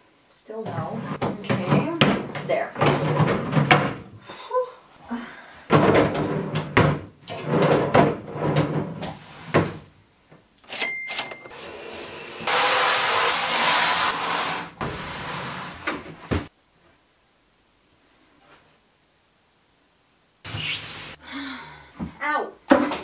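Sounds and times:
wooden drawers knocking and scraping: 0:00.7 - 0:04.1, 0:05.7 - 0:09.9
steady hissing noise: 0:12.5 - 0:22.0.

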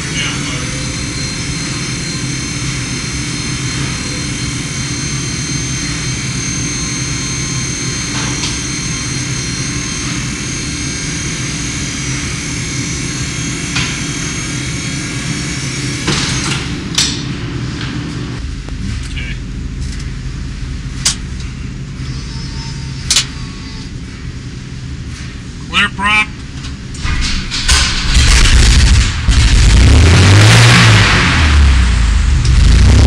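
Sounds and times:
propeller aircraft engine running: 0:00.0 - 0:33.0.

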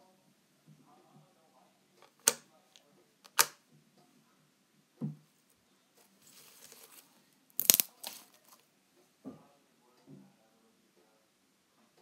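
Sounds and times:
faint rustling: 0:05.3 - 0:07.3.

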